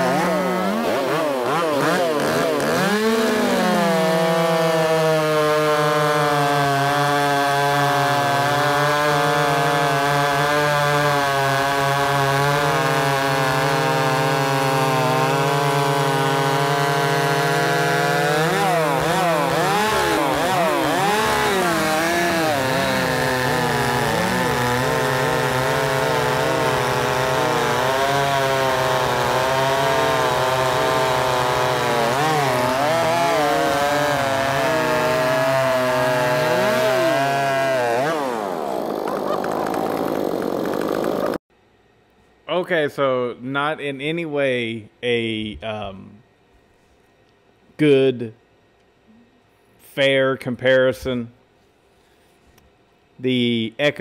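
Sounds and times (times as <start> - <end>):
chainsaws cutting logs: 0.0 - 41.4.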